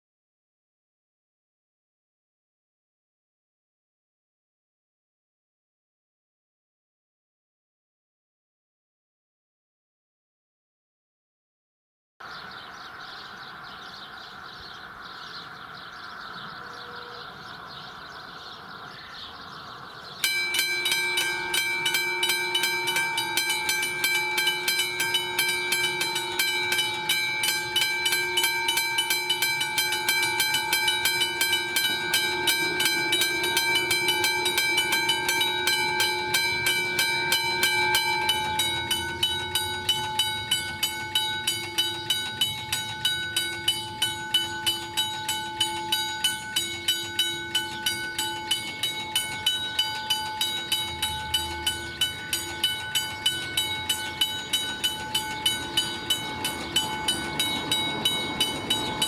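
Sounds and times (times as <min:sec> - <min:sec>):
level crossing bells ringing: 0:19.4 - 0:59.0.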